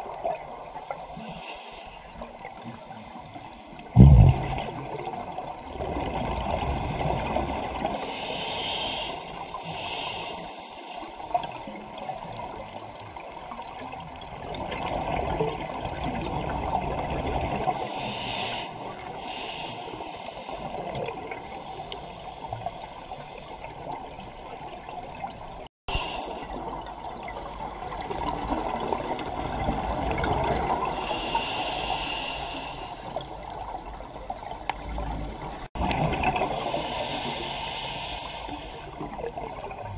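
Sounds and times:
bubbling exhaled air: 0:03.9 - 0:05.1
regulator inhalation hiss: 0:08.0 - 0:11.1, 0:17.8 - 0:20.8, 0:25.9 - 0:26.5, 0:30.9 - 0:33.2, 0:36.5 - 0:39.0.

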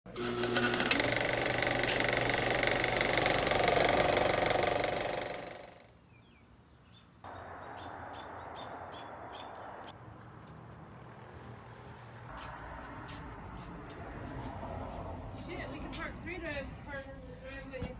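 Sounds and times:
fast mechanical clatter: 0:00.2 - 0:05.9.

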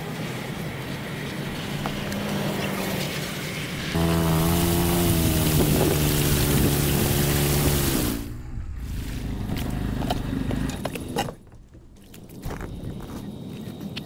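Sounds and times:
loud hiss: 0:03.9 - 0:09.2
motor engine running: 0:03.9 - 0:13.6
low rumble: 0:03.9 - 0:13.7.

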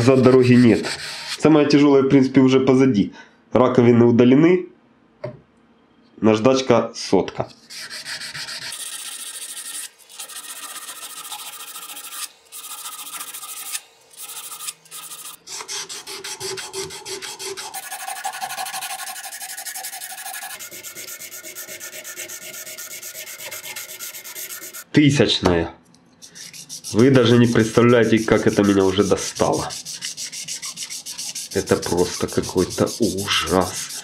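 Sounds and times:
sandpaper scraping on steel: 0:00.0 - 0:01.4, 0:07.6 - 0:24.9, 0:26.2 - 0:34.0.

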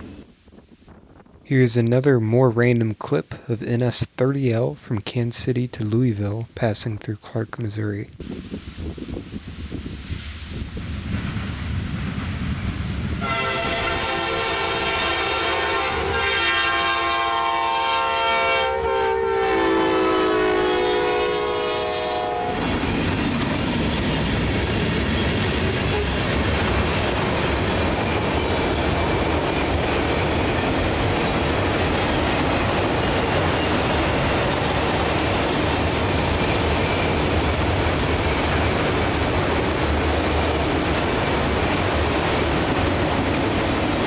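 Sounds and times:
locomotive air horn: 0:13.2 - 0:22.8
freight cars rumbling and clacking: 0:22.6 - 0:44.0.

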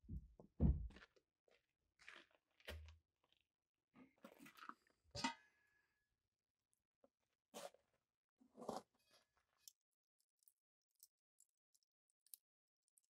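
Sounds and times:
boots thudding on wooden steps: 0:00.0 - 0:01.0.

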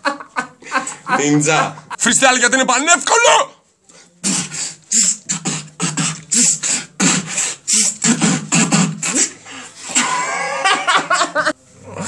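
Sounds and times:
beatboxing drum beat: 0:04.2 - 0:09.4
drawn-out pitched vocal sound: 0:04.2 - 0:10.7.

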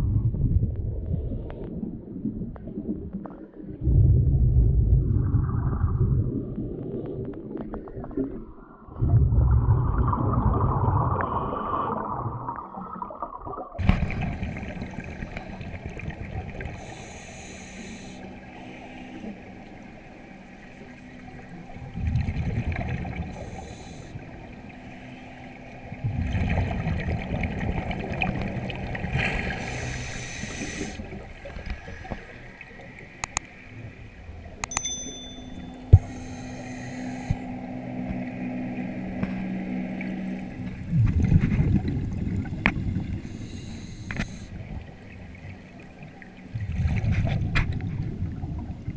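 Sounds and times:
diver exhaust bubbles gurgling: 0:02.1 - 0:16.9, 0:26.0 - 0:33.2, 0:40.2 - 0:43.3
steady underwater hiss: 0:13.8 - 0:48.9.

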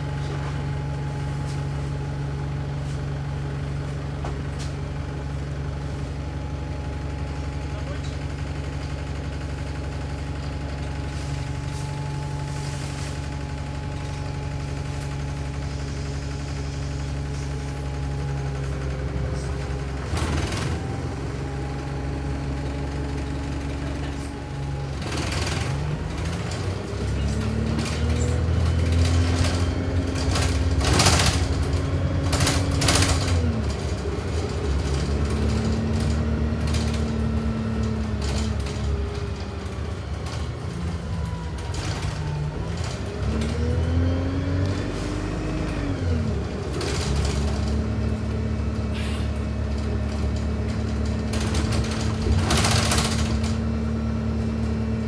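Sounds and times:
bus engine running: 0:00.0 - 0:55.0
short sharp noises from bus: 0:48.9 - 0:49.4.

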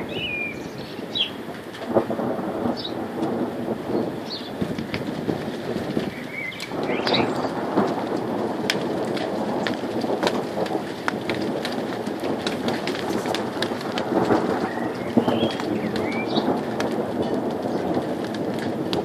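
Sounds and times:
bird chirping: 0:00.0 - 0:01.4, 0:06.1 - 0:07.6, 0:14.6 - 0:16.5
low rumble of thunder: 0:00.0 - 0:19.0
raindrops ticking on surfaces: 0:00.0 - 0:19.0
steady rain: 0:00.0 - 0:19.0.

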